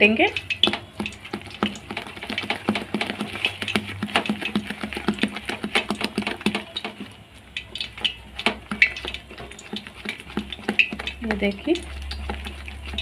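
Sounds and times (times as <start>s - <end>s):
batter beaten by hand in bowl: 0.0s - 13.0s.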